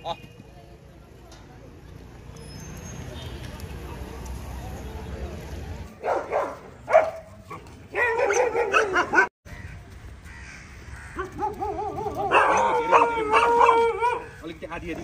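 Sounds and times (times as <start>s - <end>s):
dogs whining and crying: 11.3s - 14.3s.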